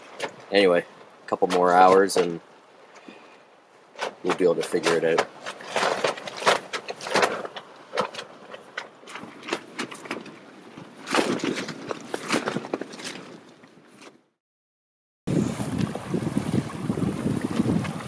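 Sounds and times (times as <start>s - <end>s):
tent fabric flapping in wind: 0.0s - 0.6s, 3.7s - 14.4s, 15.3s - 18.0s
wind gusting: 15.3s - 18.0s.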